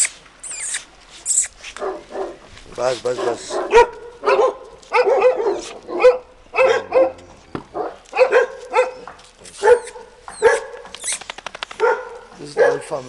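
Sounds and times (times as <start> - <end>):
dog barking: 1.8 - 2.4, 3.1 - 10.9, 11.8 - 13.0.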